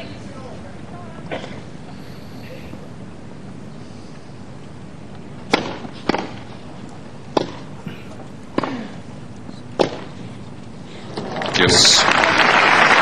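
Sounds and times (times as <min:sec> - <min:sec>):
faint crowd murmur: 0:00.0 - 0:04.9, 0:07.7 - 0:09.6
tennis racket hitting ball: 0:05.5 - 0:06.4, 0:07.3 - 0:07.7.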